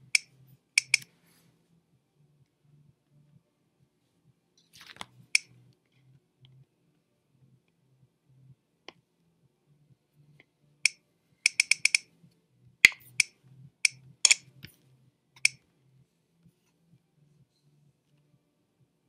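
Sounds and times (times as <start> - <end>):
computer mouse clicks: 0.1 - 1.1, 10.8 - 12.0.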